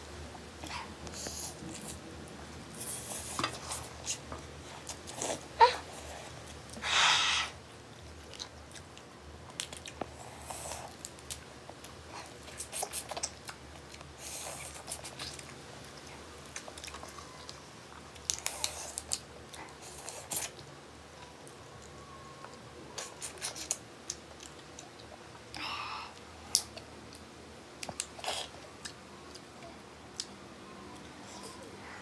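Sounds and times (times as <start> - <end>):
chewing: 8.0 - 25.3.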